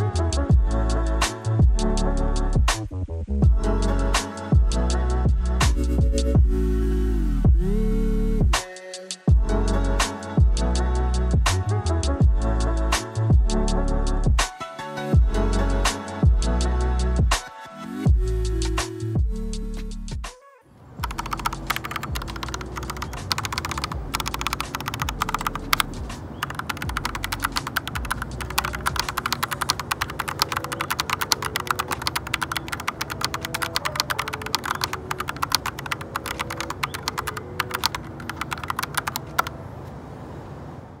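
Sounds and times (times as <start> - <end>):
mechanical keyboard typing: 21.0 - 39.5.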